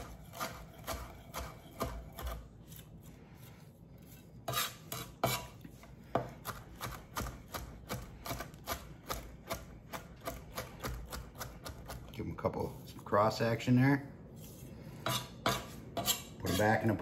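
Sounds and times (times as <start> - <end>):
knife chopping on wooden board: 0.0 - 2.4, 4.5 - 12.1.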